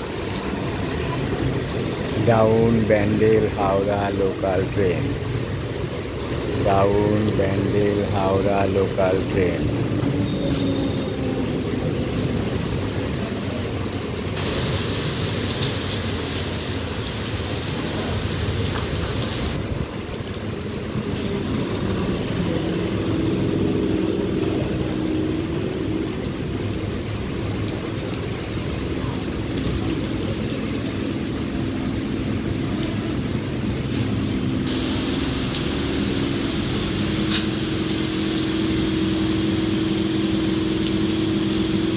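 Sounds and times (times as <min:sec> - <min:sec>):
rain falling: 0:00.0 - 0:41.9
hiss: 0:14.4 - 0:16.2, 0:33.9 - 0:39.5.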